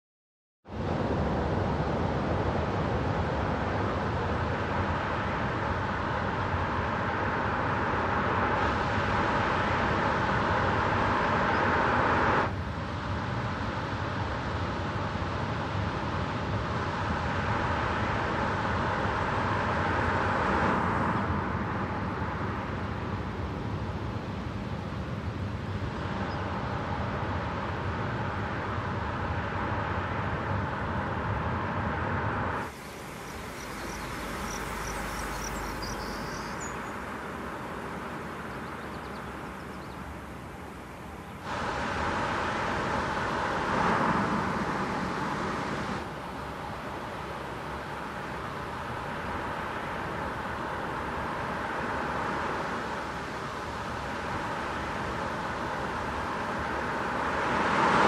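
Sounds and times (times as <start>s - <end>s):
faint steady hum: 0.7s - 57.7s
tyre and road noise: 32.4s - 46.3s.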